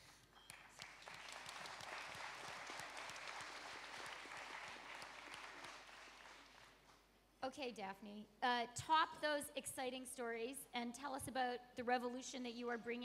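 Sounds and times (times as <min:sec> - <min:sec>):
audience applause: 0:00.5 - 0:06.8.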